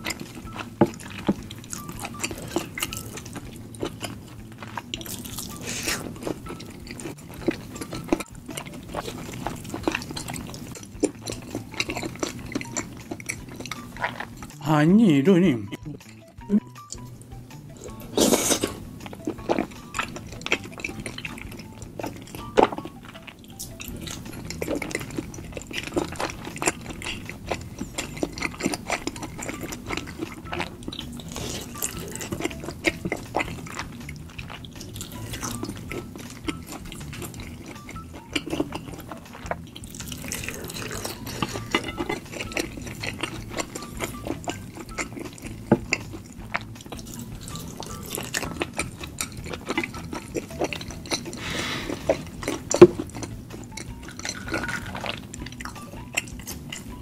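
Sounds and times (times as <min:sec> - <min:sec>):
wet chewing and mouth smacking: 0:00.0 - 0:14.6, 0:15.7 - 0:57.0
fork scraping a plate: 0:47.6 - 0:53.2.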